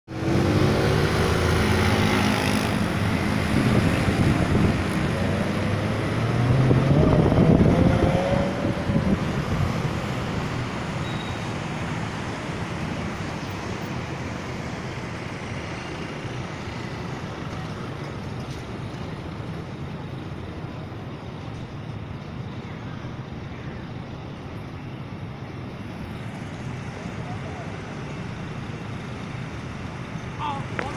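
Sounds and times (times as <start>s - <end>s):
road traffic: 0.0s - 30.9s
vehicle engine accelerating: 0.1s - 11.0s.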